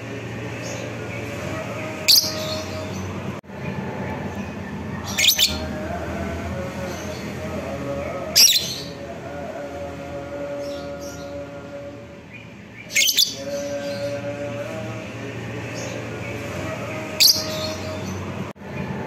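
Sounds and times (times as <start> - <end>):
steady background hum: 0.0 - 19.0
bird shrill chirps: 5.1 - 5.6, 12.8 - 13.8.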